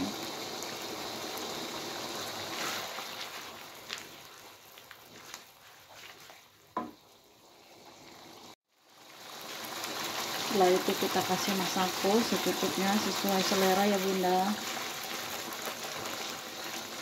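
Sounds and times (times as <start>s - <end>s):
sauce bubbling and sizzling: 0.0s - 17.0s
spatula scraping a wok: 2.3s - 4.1s
spatula knocking against pan: 6.8s - 7.0s.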